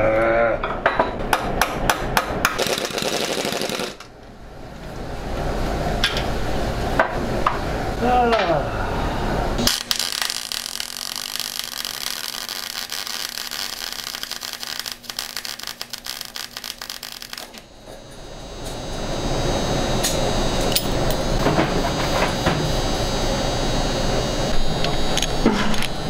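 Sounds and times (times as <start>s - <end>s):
welder arc crackling: 2.5s - 4.1s, 9.6s - 19.0s
welder low hum: 2.6s - 26.0s.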